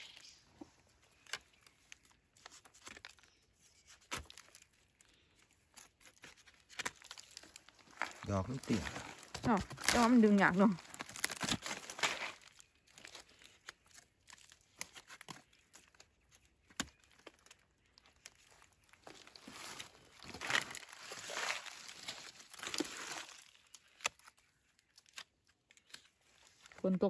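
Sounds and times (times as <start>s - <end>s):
rustling and crackling: 0.0s - 16.4s.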